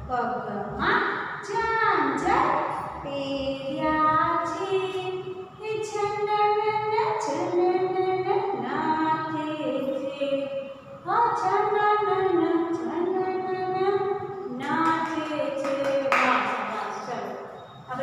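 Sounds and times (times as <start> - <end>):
woman singing unaccompanied: 3.1 - 16.5.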